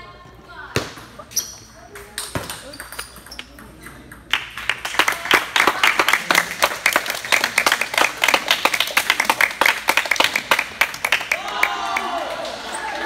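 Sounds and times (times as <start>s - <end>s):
crowd clapping: 4.3s - 13.0s.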